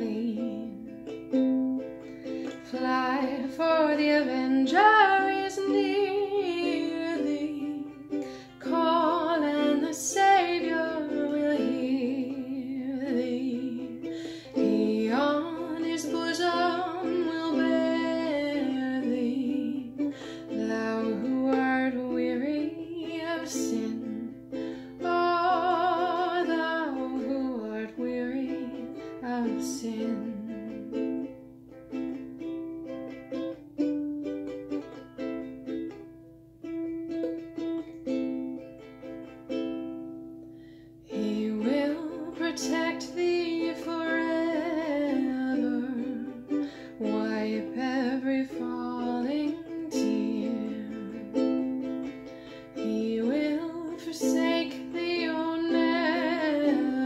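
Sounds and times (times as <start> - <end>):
woman singing a hymn: 0.0 - 0.9, 2.6 - 30.8, 41.1 - 51.8, 52.8 - 57.0
ukulele chords: 0.0 - 57.0.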